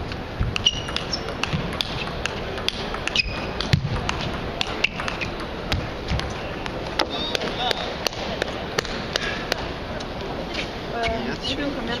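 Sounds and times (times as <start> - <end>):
distant ball clicks echoing: 0.5 - 9.7
short high squeaks: 0.6 - 1.2
table tennis ball clicking: 0.6 - 9.6.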